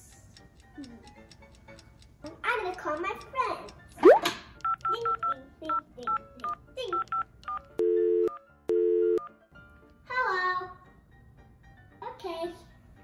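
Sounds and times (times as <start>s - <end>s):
keypad dialing beeps: 4.0s - 9.3s
telephone ringing tone: 6.9s - 9.2s.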